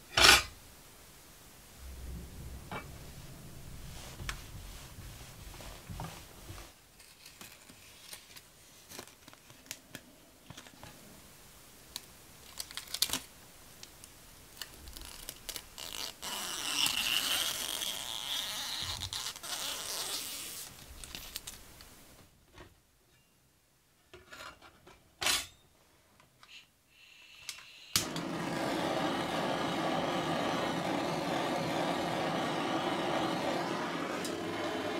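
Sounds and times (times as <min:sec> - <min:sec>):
steady rushing noise: 0:01.3 - 0:06.6
cloth rubbing metal sheet: 0:01.7 - 0:06.8
plastic film peeling off: 0:12.4 - 0:13.3, 0:14.5 - 0:21.6.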